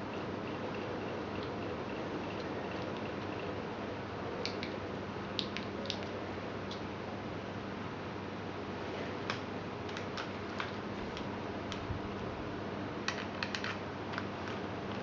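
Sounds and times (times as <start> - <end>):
steady hiss and low hum: 0.0 - 15.0
plastic and cable handling clicks: 13.1 - 15.0.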